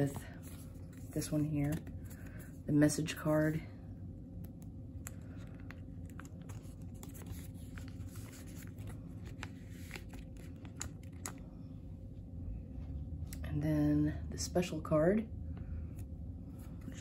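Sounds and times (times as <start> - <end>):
plastic binder page crinkling: 5.0 - 11.5.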